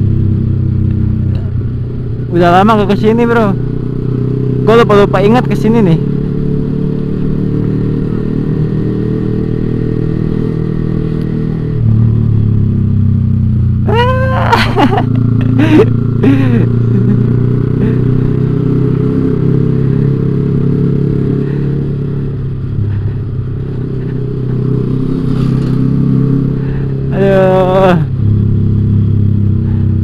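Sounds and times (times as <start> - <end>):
motorcycle engine cruising: 0.0 - 30.0.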